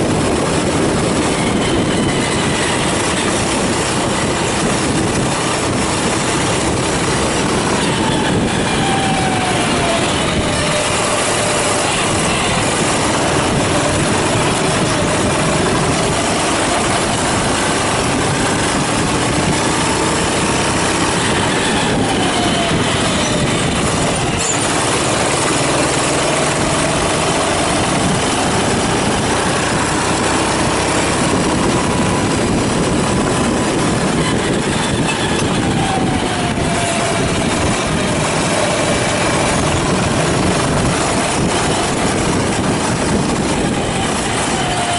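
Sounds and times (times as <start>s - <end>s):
kart engine accelerating: 0.0s - 44.9s
road and wind noise: 0.0s - 44.9s.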